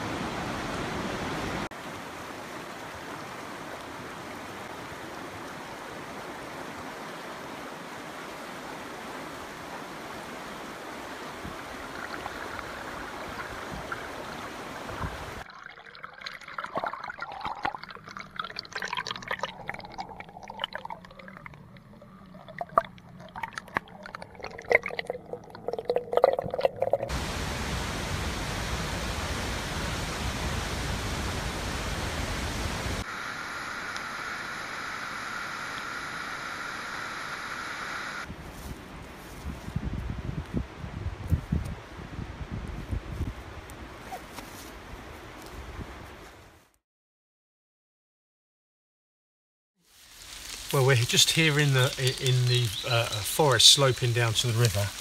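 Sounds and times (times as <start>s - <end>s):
river water rushing: 0.0s - 15.5s, 27.1s - 33.7s
water gurgling and splashing: 11.5s - 27.7s
waterfall rushing: 27.1s - 33.4s, 50.7s - 55.0s.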